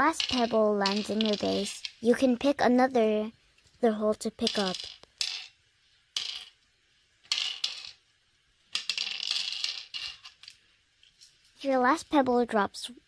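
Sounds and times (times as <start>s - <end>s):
pebbles clattering into wooden board: 0.0s - 2.1s, 4.4s - 6.6s, 7.2s - 8.0s, 8.7s - 10.6s.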